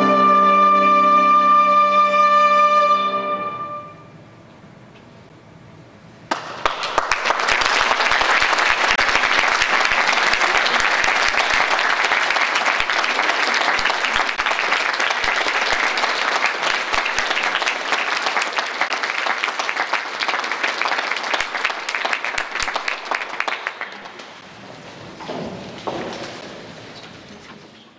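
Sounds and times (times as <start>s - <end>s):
audience applauding: 6.3s - 24.5s.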